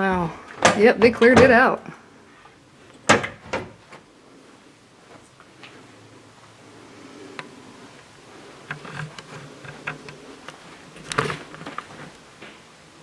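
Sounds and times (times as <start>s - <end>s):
soft footsteps: 3.8s - 6.6s, 7.9s - 12.8s.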